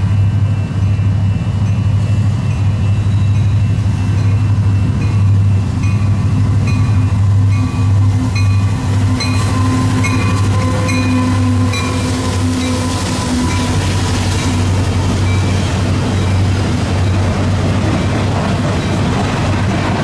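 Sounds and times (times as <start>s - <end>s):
diesel locomotive engines humming: 0.0s - 20.0s.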